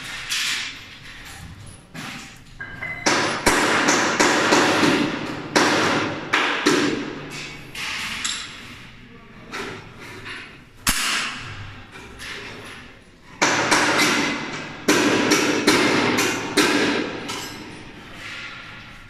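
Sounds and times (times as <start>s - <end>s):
sharp metal knocks: 2.0s - 8.6s, 13.4s - 17.8s.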